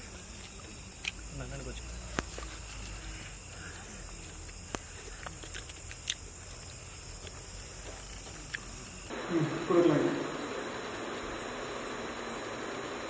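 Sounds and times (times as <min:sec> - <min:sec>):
steady high hiss: 0:00.0 - 0:13.0
steady low hum: 0:00.0 - 0:13.0
mouth clicks and smacks chewing: 0:04.4 - 0:07.4.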